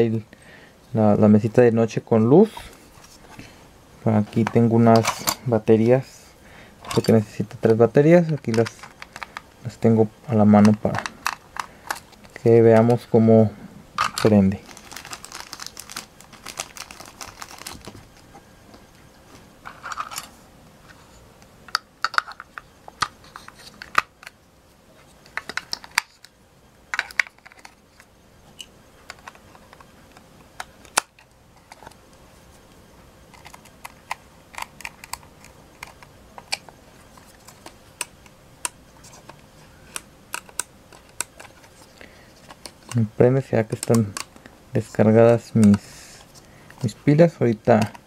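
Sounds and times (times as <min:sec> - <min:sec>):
batteries clicking into plastic: 0:39.9 - 0:43.0.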